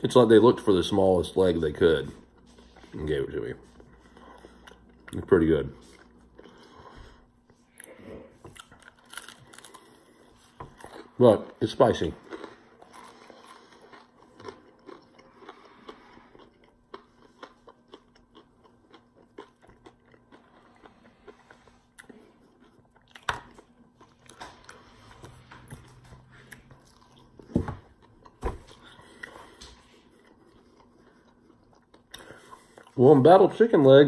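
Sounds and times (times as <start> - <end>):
wet chewing: 12.2 - 33.0.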